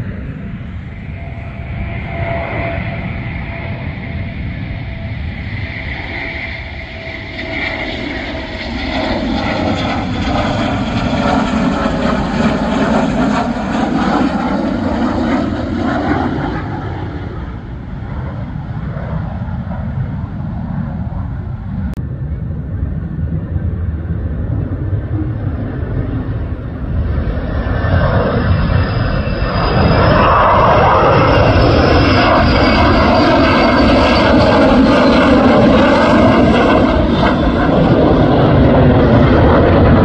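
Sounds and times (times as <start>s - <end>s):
faint whine falling in pitch: 0.0s - 17.3s
fighter jet engine roar: 0.0s - 40.0s.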